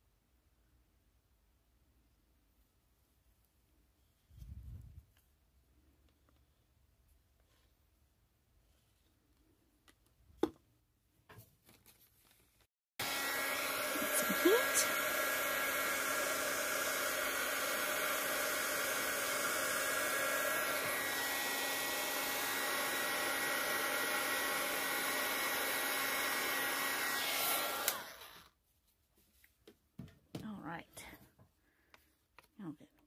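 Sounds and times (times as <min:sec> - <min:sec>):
heat gun fan and motor whine: 0:13.0 - 0:28.5.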